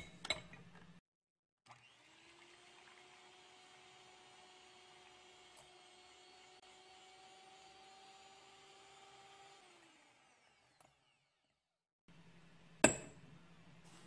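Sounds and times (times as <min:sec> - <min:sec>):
electric hand mixer whirring: 0:01.7 - 0:11.5.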